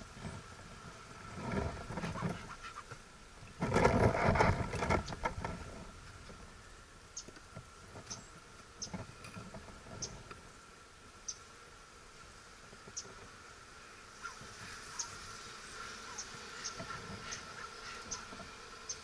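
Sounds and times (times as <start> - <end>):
wooden hive cover scraping and knocking: 0.0 - 6.5, 7.6 - 10.2
honeybees humming: 0.0 - 19.0.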